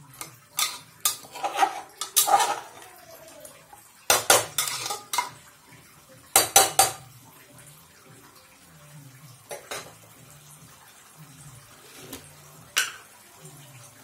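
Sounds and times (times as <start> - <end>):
metal spatula clanking in metal pot: 0.2 - 2.8, 4.1 - 5.4, 6.3 - 7.0.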